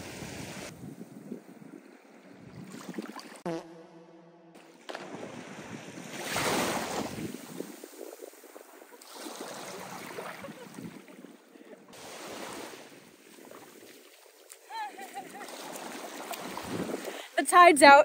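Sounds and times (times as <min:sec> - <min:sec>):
wind on microphone: 0:00.0 - 0:03.4, 0:05.0 - 0:11.4, 0:15.0 - 0:17.3
person falling into water: 0:04.6 - 0:11.3
small waves breaking: 0:04.6 - 0:17.4
water sloshing from wading: 0:04.6 - 0:17.4.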